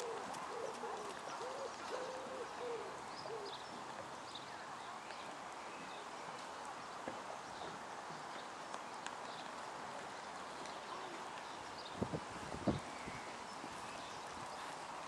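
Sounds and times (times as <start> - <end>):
bird cooing and hooting: 0.0 - 3.6.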